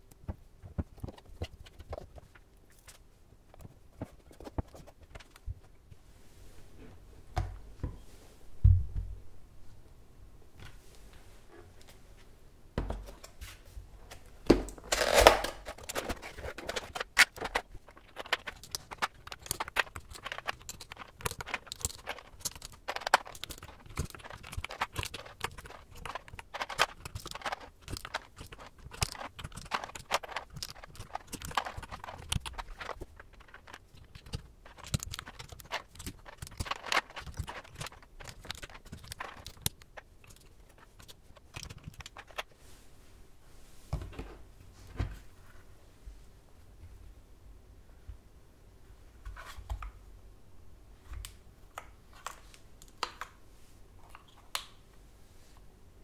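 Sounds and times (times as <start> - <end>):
plastic keycaps clicking: 15.8 - 42.4.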